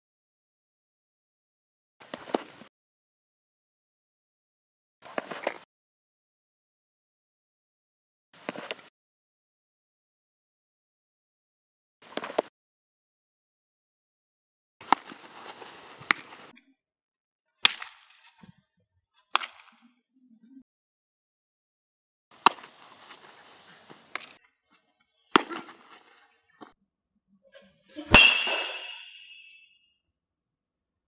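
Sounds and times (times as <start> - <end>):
metal bat hitting ball: 28.0 - 29.7.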